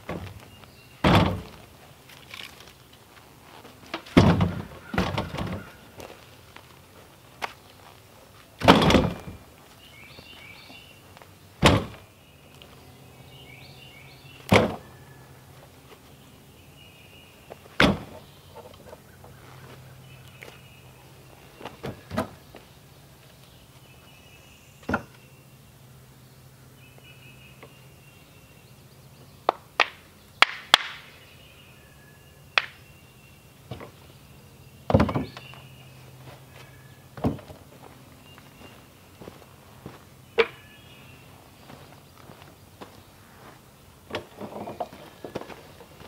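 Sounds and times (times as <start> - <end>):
firewood knocking into wheelbarrow: 3.9 - 5.7, 34.9 - 35.5, 37.2 - 37.6, 44.1 - 45.9.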